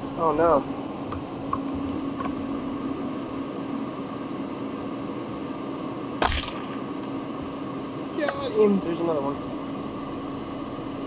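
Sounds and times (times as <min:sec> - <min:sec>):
heater fan humming: 0:00.0 - 0:11.0
rifle shot: 0:06.2 - 0:06.8.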